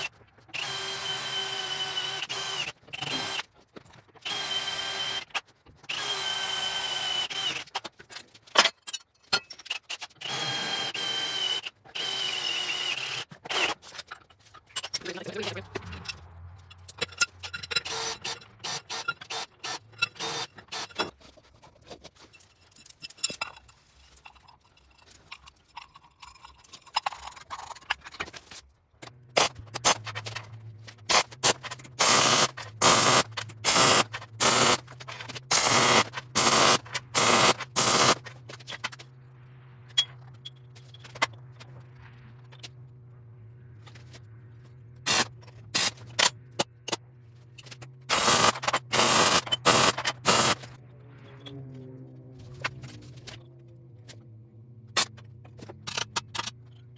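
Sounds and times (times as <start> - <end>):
cordless drill on steel plate: 0.0 - 3.5, 4.2 - 7.8, 10.0 - 13.8, 17.7 - 21.1, 32.0 - 34.9, 35.5 - 38.2, 48.1 - 50.6.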